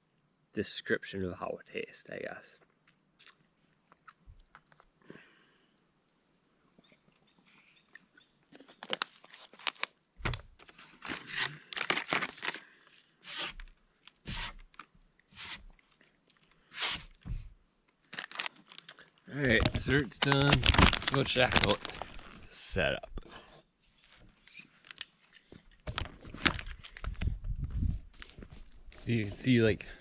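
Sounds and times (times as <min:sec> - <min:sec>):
high insect trill: 0:00.0 - 0:30.0
plastic bottle crinkling: 0:08.5 - 0:12.7, 0:18.1 - 0:22.5, 0:24.1 - 0:27.3
foil wrapper rustling: 0:08.6 - 0:12.7, 0:18.1 - 0:18.9, 0:19.6 - 0:22.5, 0:25.9 - 0:27.3.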